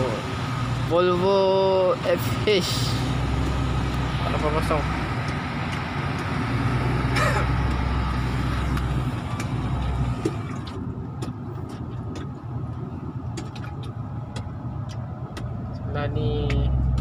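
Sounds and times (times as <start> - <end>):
truck diesel engine droning: 0.0 - 17.0.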